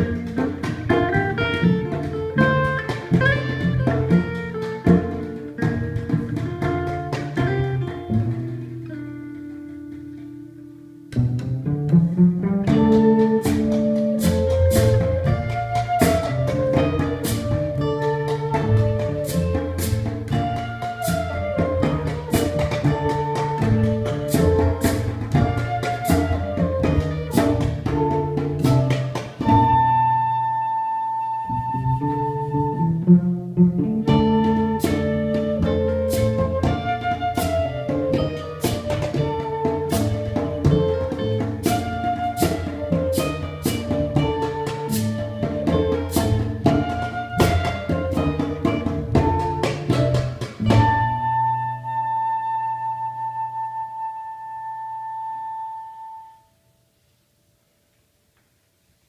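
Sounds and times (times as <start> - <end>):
acoustic guitar: 0.0 - 25.8
cello: 0.0 - 56.4.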